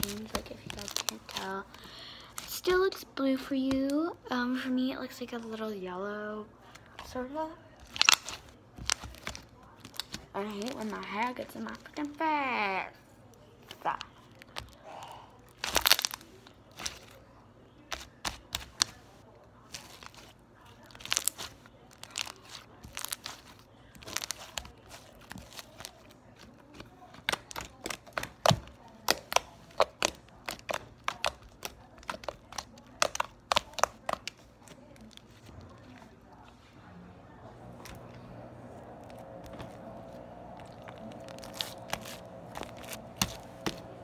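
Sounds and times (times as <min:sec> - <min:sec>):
slime clicking and popping: 0:15.6 - 0:16.2, 0:26.7 - 0:34.4.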